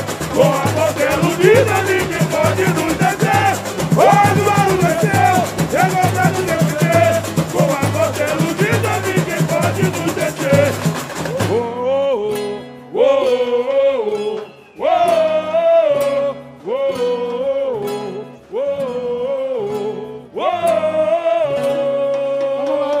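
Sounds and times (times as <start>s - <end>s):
instrumental accompaniment: 0.0s - 13.0s
men singing in group: 0.0s - 23.0s.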